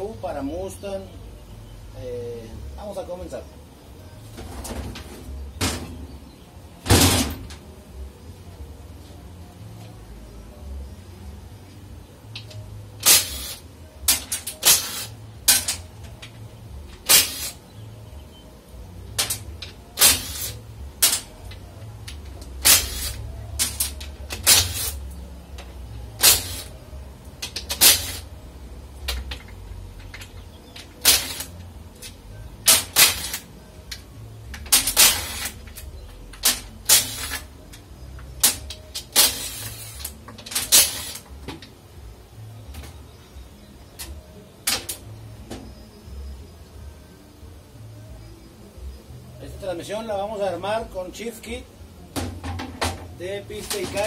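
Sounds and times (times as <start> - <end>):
impact wrench bursts: 17.0 - 17.6, 20.0 - 21.3.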